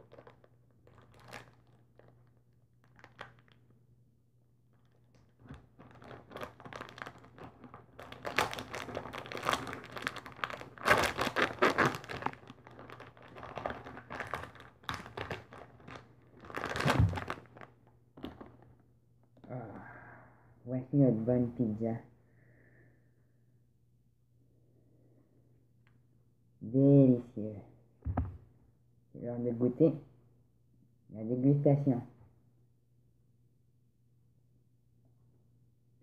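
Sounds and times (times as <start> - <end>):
plastic wrapper crinkling and tearing: 0.0 - 3.8, 4.7 - 18.8.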